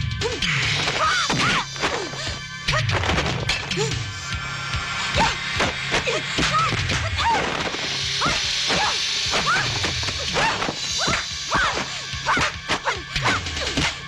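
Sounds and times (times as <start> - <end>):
backing music: 0.0 - 14.0
fighting cries: 8.2 - 14.0.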